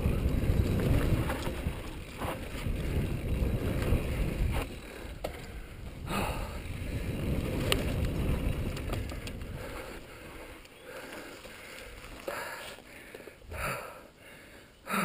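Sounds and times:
wind rumble on microphone: 0:00.0 - 0:10.5
bike rattle: 0:00.0 - 0:13.4
bike tyres on dirt: 0:00.0 - 0:15.0.

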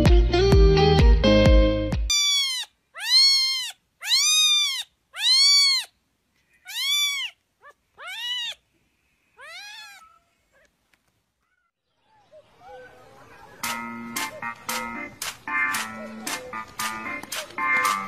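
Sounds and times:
kitten meowing: 0:02.1 - 0:05.9, 0:06.6 - 0:08.6, 0:09.4 - 0:10.7.

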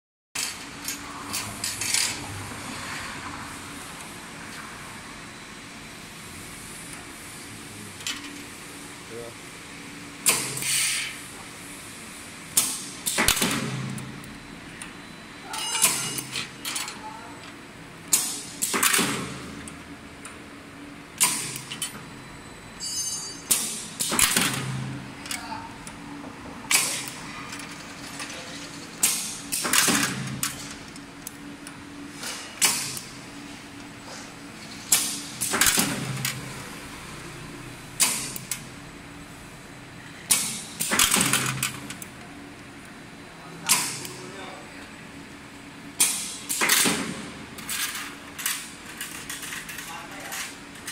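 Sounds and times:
welding hiss and crackle: 0:10.2 - 0:11.4.

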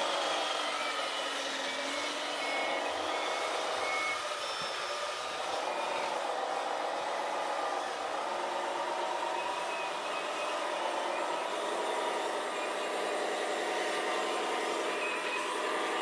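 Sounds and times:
simulated diesel engine revving: 0:00.0 - 0:16.0
reversing beeper short beeps: 0:01.7 - 0:05.0.

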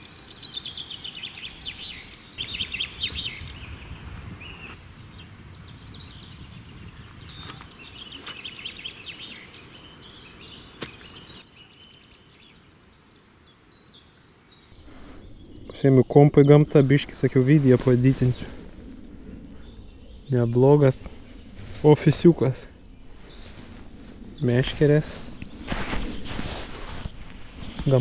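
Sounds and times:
songbirds chirping: 0:00.0 - 0:28.0
low steady rumble: 0:14.8 - 0:27.9.

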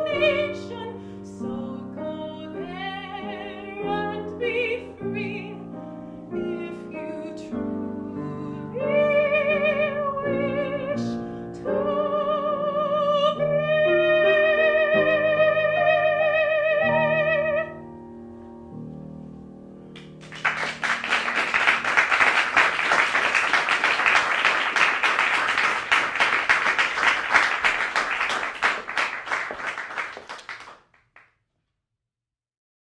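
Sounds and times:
soprano singing with vibrato: 0:00.0 - 0:05.7, 0:06.4 - 0:17.8
piano chords: 0:00.0 - 0:29.9
audience applauding: 0:20.0 - 0:31.3.

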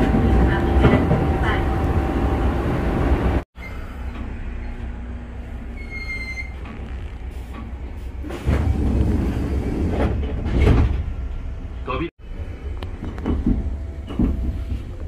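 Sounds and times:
train running rumble: 0:00.0 - 0:05.8, 0:06.4 - 0:15.0
high wheel squeal: 0:03.6 - 0:04.9, 0:05.7 - 0:06.6.

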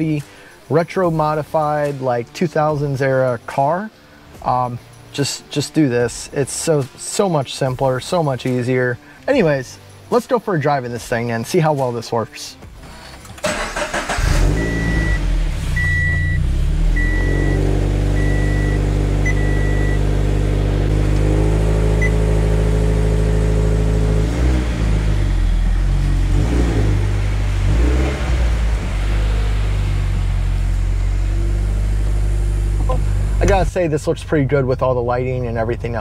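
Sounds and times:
car engine idling: 0:13.0 - 0:36.0
car warning chime beeping: 0:13.8 - 0:20.2, 0:22.0 - 0:22.3.

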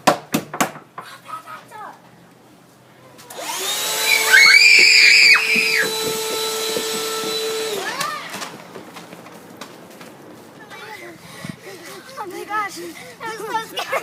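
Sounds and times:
vacuum cleaner motor whine: 0:03.3 - 0:08.3
loud shrill sound: 0:04.0 - 0:05.9.

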